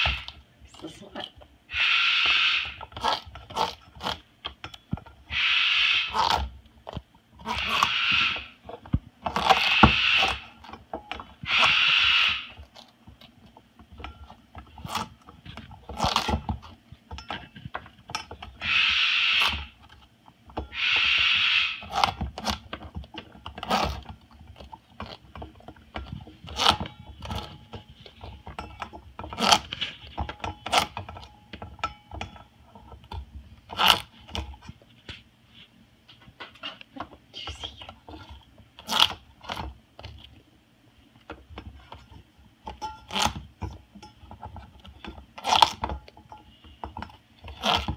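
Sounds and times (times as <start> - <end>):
bird bill crunching squash: 0.0 - 0.4, 1.7 - 16.8, 18.4 - 20.0, 20.6 - 28.5, 29.3 - 31.3, 33.6 - 34.7, 37.7 - 40.4, 42.7 - 46.8, 47.4 - 47.9.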